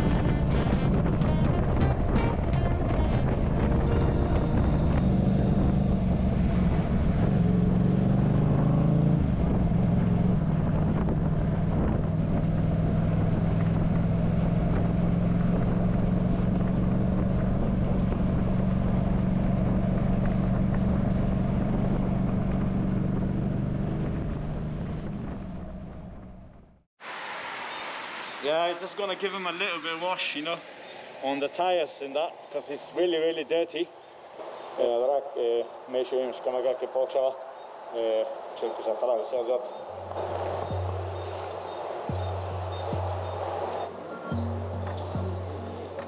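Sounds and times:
wind noise: 0.0 - 26.3
motorcycle engine cruising: 0.0 - 26.8, 37.5 - 46.0
road noise: 0.0 - 46.0.

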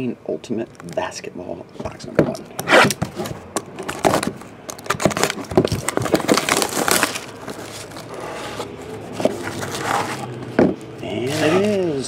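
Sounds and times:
box and wrapper handling: 0.6 - 1.2, 1.8 - 12.0
cellophane wrap crackling: 0.6 - 1.2, 2.6 - 10.4.

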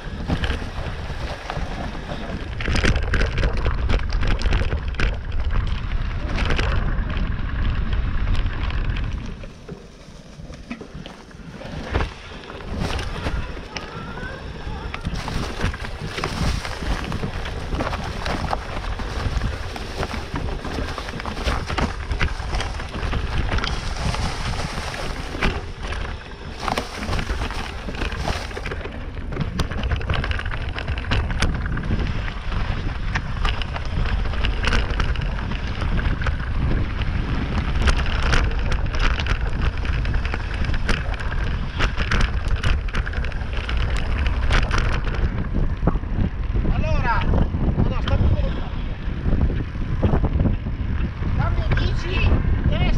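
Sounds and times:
wind rumbling on microphone: 0.0 - 52.9
tyres rattling on loose ground: 11.9 - 36.8.

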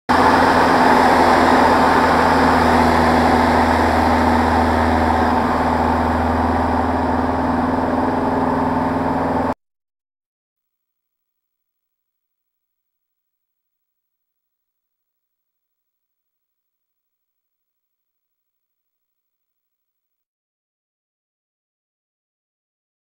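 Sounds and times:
aircraft engine and propeller drone: 0.1 - 9.6.

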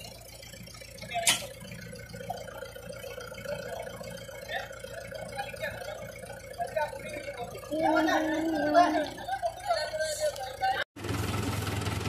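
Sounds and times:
faint men's voices: 2.2 - 10.8.

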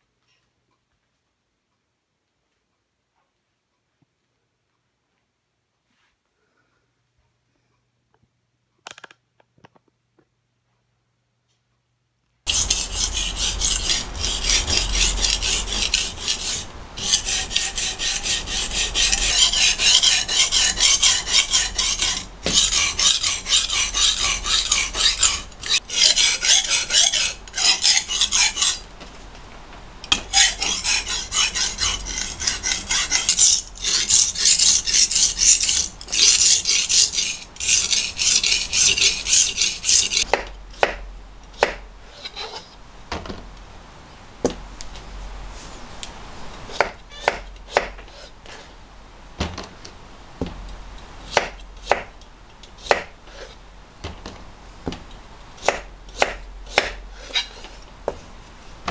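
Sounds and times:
knife rasping on whetstone: 12.5 - 28.9, 30.1 - 41.0, 41.6 - 42.7, 46.7 - 48.7, 51.3 - 52.1, 52.8 - 53.6, 55.6 - 57.8.

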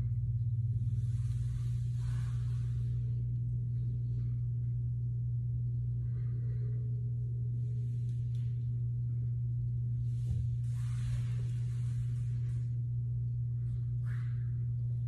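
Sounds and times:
steady low hum: 0.0 - 15.0
faint rustles: 0.5 - 4.4, 9.9 - 15.0.

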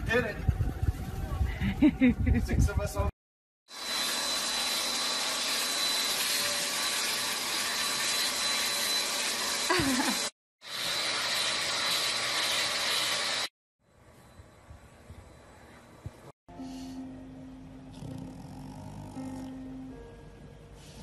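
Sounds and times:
vacuum cleaner whining: 3.7 - 13.5.

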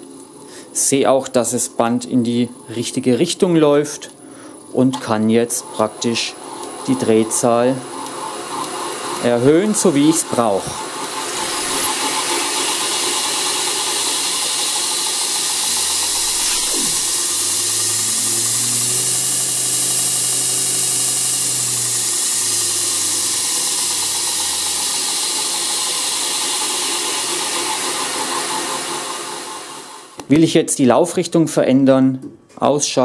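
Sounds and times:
motor hum: 10.7 - 26.6
sanding belt whirring: 10.8 - 30.0.

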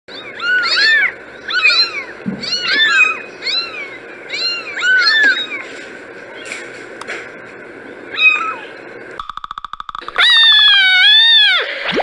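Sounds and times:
kittens meowing: 0.1 - 5.7, 8.1 - 8.7, 10.0 - 11.7.

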